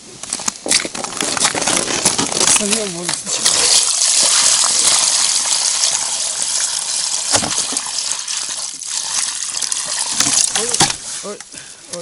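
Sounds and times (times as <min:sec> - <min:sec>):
water splashing on ice: 0:00.5 - 0:11.4
water gushing from bucket: 0:01.5 - 0:11.4.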